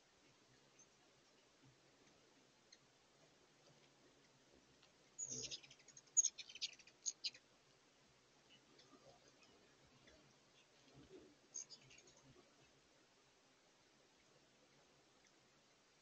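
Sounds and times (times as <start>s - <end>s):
hummingbird chittering: 5.2s - 7.4s, 11.5s - 12.2s.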